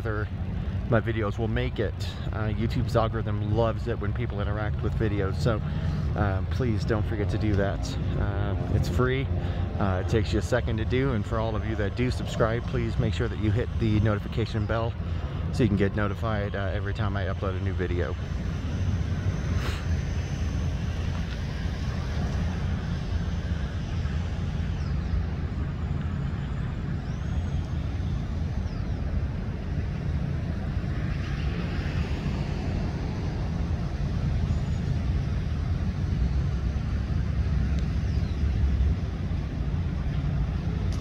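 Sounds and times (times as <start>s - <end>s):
road traffic noise: 0.0s - 41.0s
vehicle engine rumbling: 0.0s - 41.0s.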